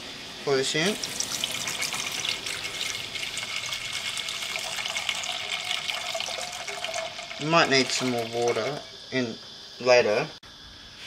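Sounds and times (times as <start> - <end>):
liquid pouring into metal pot: 0.9 - 9.1.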